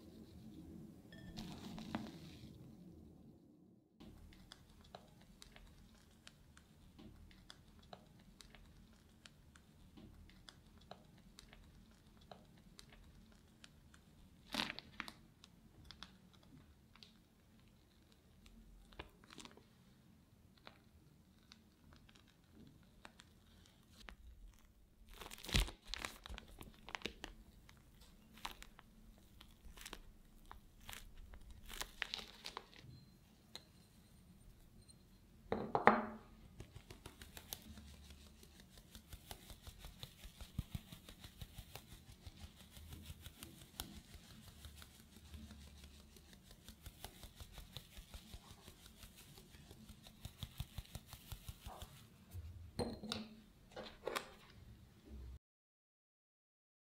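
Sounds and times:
plastic bag crinkling: 21.4 - 32.9.

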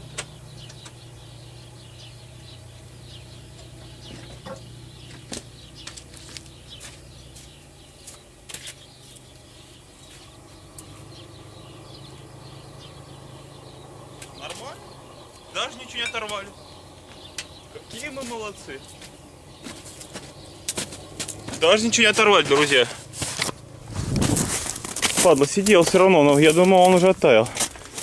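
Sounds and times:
tractor diesel engine idling: 0.0 - 28.0
faint high chirps and clicks: 0.1 - 1.1, 3.6 - 11.0, 14.2 - 18.2.

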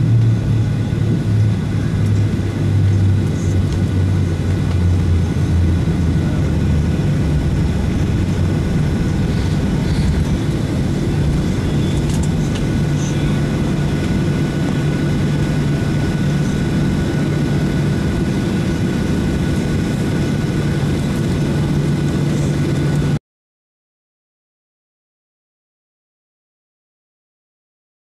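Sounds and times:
rushing airflow: 0.0 - 23.1
jet engines droning: 0.0 - 23.2
faint high whine: 6.2 - 21.1.

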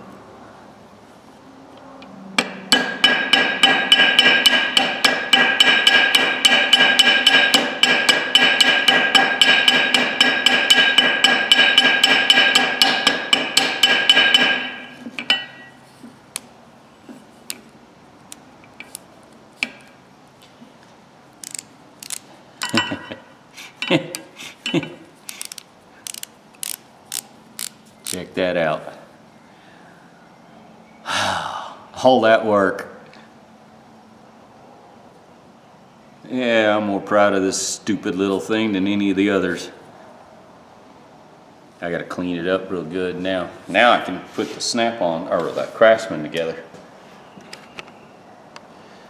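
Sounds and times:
hammer tapping metal on anvil: 2.4 - 15.8
metal part clicks and knocks: 21.4 - 23.1, 23.8 - 28.2.

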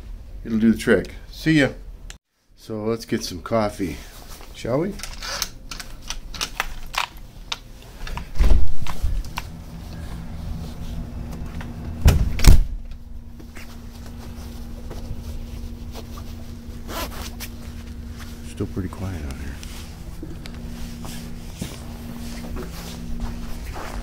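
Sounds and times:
steady low hum: 0.0 - 24.0
door thumps: 12.0 - 12.8.

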